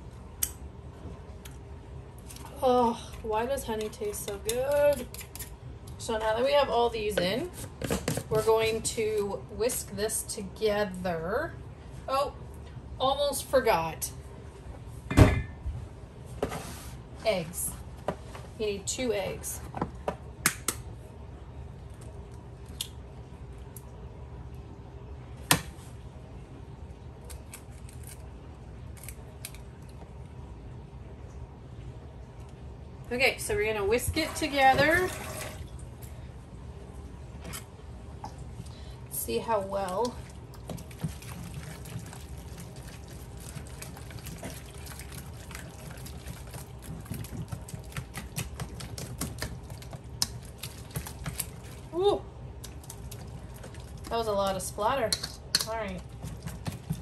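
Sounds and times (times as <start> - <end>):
eggs cracking against bowl: 39.8 - 51.9
whisk beating wet batter: 40.5 - 51.8, 55.6 - 57.0.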